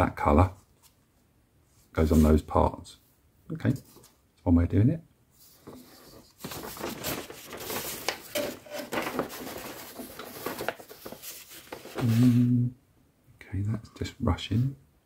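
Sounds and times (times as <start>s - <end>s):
paper sheets rustling: 5.4s - 12.4s
man murmuring: 12.0s - 12.8s.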